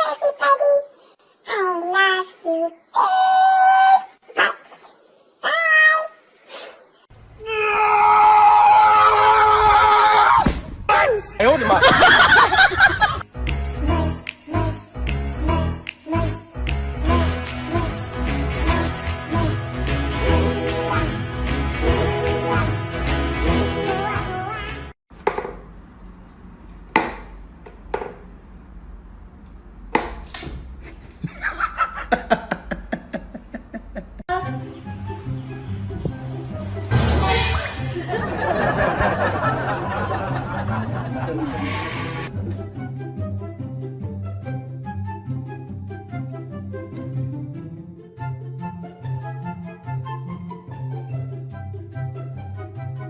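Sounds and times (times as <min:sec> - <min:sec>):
music: 0:13.2 - 0:25.0, 0:34.3 - 0:53.0.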